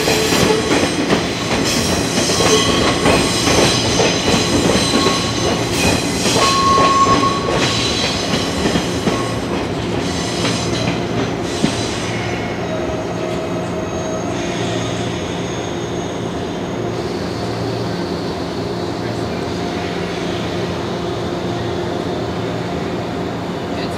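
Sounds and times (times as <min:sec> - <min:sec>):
train wheels clacking: 0:00.0 - 0:12.4
train running hum: 0:00.0 - 0:23.9.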